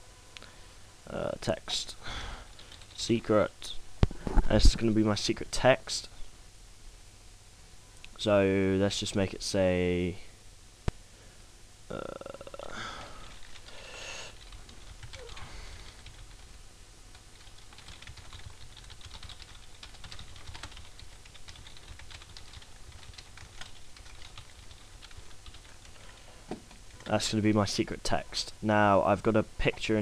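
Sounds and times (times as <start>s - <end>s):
typing on computer keyboard: 14.4s - 16.5s, 17.1s - 26.2s.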